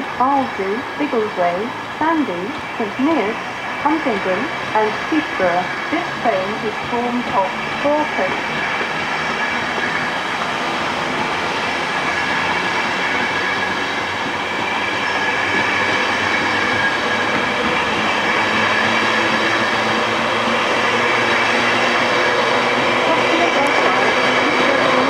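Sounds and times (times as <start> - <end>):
steady tones: 0.0 - 10.5
train wheels rolling on rail: 0.0 - 25.0.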